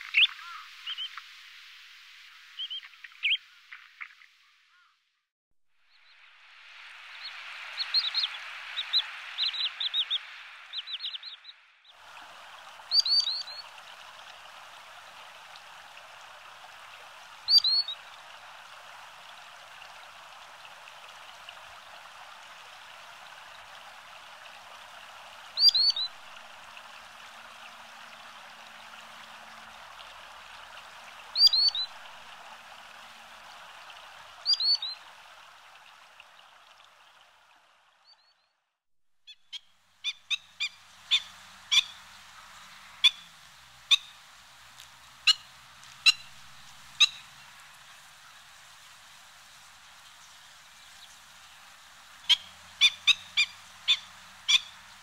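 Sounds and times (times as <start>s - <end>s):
steady background hiss: 12.0s - 37.4s, 39.6s - 55.0s
bird calling: 12.8s - 13.8s, 17.4s - 18.0s, 25.6s - 26.2s, 31.4s - 32.0s.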